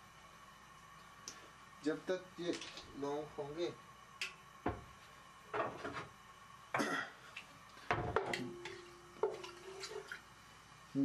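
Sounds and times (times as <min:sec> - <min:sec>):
cloves sizzling in hot oil: 0:00.0 - 0:11.0
wooden spoon knocking metal pot: 0:07.9 - 0:09.6.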